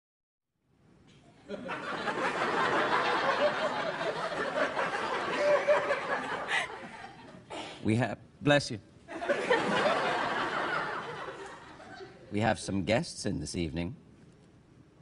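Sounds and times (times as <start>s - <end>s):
studio audience laughing: 1.5s - 7.4s, 9.1s - 12.2s.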